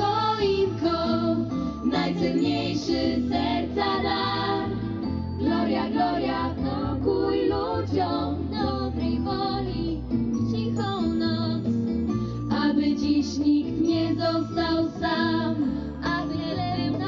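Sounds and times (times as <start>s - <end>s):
children singing into microphones: 0.0s - 9.9s.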